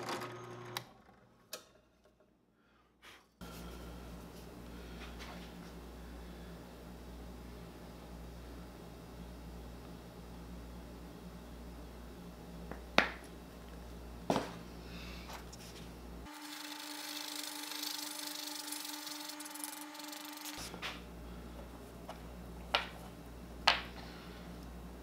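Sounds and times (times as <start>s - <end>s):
stick stirring epoxy hiss: 16.3s - 20.8s.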